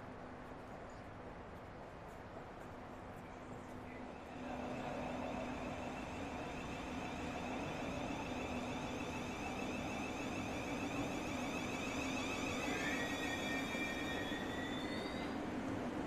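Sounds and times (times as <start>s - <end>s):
train rumbling: 3.4s - 16.0s
electric train whine: 4.0s - 16.0s.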